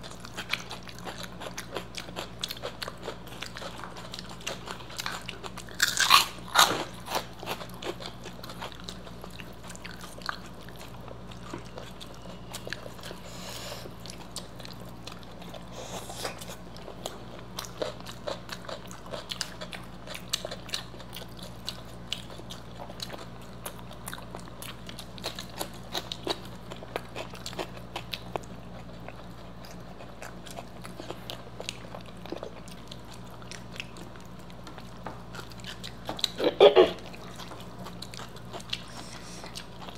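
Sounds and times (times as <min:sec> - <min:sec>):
chewing with mouth clicks: 0:00.0 - 0:39.9
faint steady hum: 0:00.0 - 0:39.9
crunching bites of snacks: 0:00.1 - 0:10.6.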